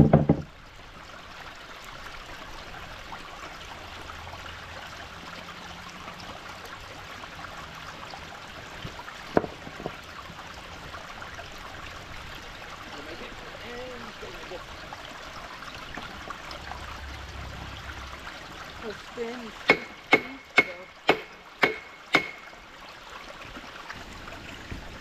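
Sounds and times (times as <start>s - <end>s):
knocks of wooden waterwheel: 0.0s - 0.6s, 8.7s - 11.0s, 18.8s - 22.7s
brook trickling: 0.0s - 25.0s.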